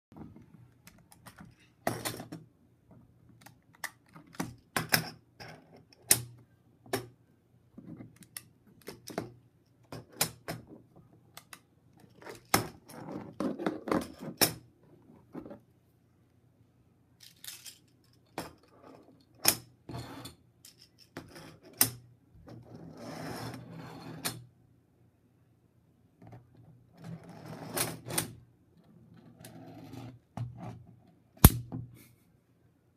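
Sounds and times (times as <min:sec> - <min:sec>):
plastic pieces clicking together: 0:17.2 - 0:18.0.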